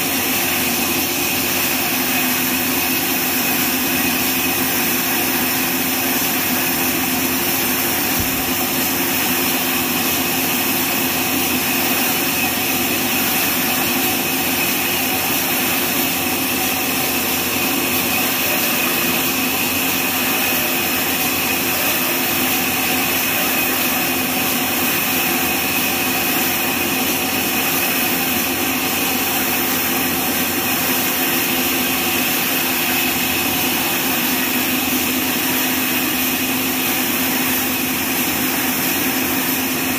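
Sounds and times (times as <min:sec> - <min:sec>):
band saw cutting a log: 0:00.0 - 0:39.9.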